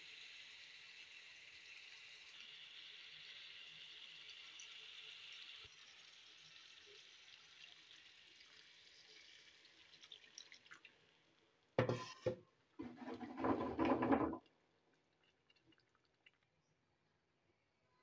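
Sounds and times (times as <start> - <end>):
water pouring into a wok: 0.0 - 11.4
faint sizzle in a pan: 0.0 - 13.1.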